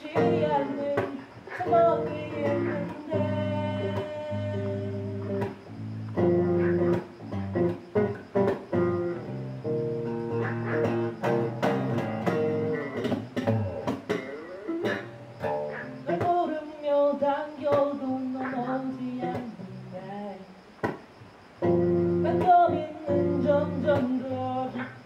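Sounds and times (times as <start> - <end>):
electric bass guitar plucked: 0.0 - 1.0, 1.6 - 16.3, 21.6 - 24.5.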